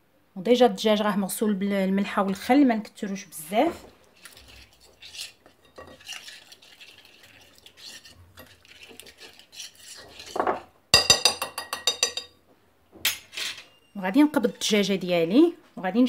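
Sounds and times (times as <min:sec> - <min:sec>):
stirring marinade in glass bowl: 0:03.8 - 0:12.3
metal spoon clinking on glass: 0:11.0 - 0:12.4.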